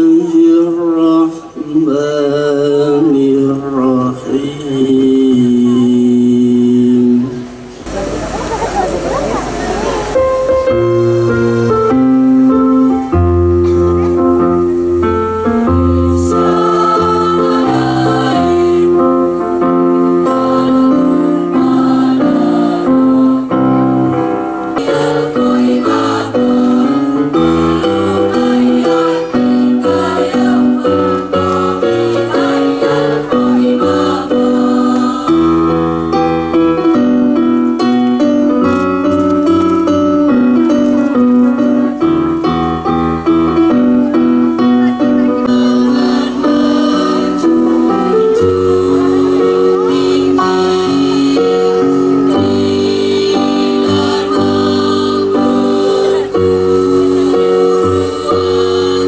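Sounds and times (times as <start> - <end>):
keyboard accompaniment: 0.0 - 59.0
choir singing: 15.5 - 37.8, 45.0 - 59.0.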